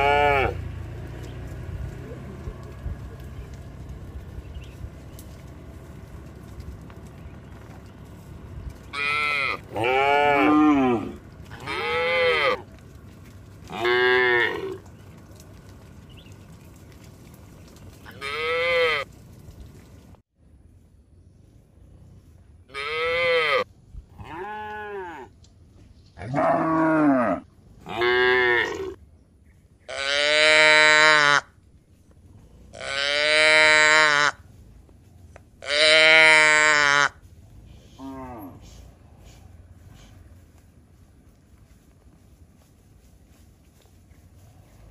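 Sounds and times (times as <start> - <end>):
cattle mooing: 0.0 - 0.7, 8.9 - 12.7, 13.7 - 14.9, 18.1 - 19.0, 22.8 - 23.6, 26.2 - 29.0, 29.9 - 31.4, 32.7 - 34.4, 35.6 - 37.1.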